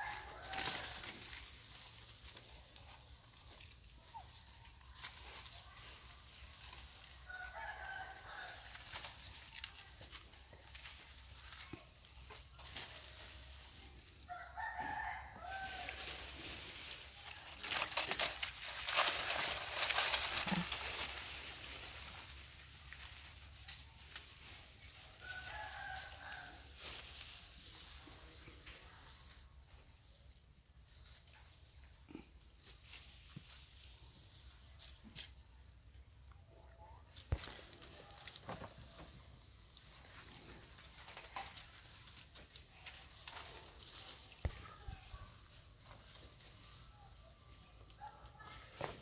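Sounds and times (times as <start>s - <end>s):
rooster crowing: 0.0s - 1.1s, 7.2s - 8.8s, 14.3s - 16.0s, 25.2s - 26.7s.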